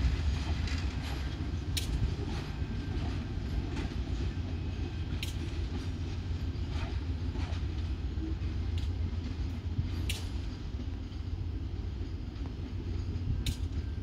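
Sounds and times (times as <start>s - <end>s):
train rumbling over rails: 0.0s - 14.0s
wheel clicks over rail joints: 0.3s - 2.4s.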